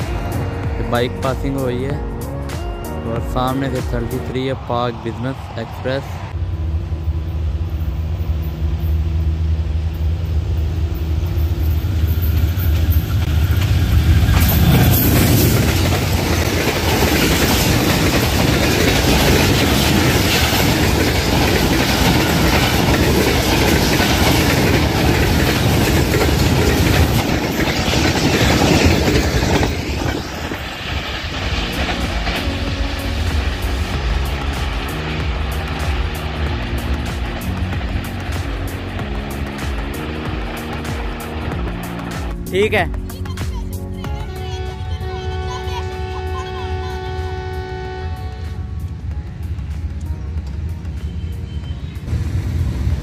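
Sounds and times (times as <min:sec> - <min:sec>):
locomotive engine drone: 0:04.4 - 0:43.0, 0:44.2 - 0:53.0
train wheels clattering over rails: 0:11.8 - 0:42.4.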